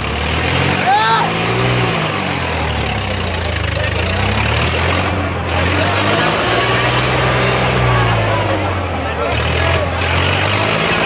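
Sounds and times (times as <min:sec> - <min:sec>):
tractor diesel engine under load: 0:00.0 - 0:11.0.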